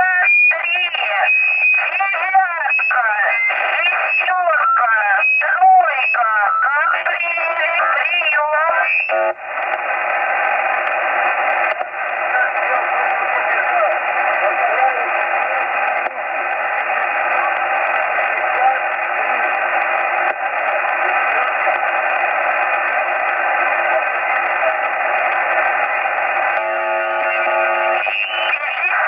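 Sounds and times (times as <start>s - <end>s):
shortwave static hiss: 6.9s - 29.0s.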